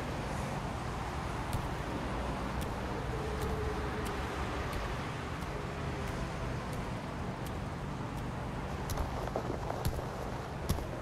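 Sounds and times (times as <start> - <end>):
distant traffic rumble: 0.0 - 11.0
faint ticks: 2.5 - 10.9.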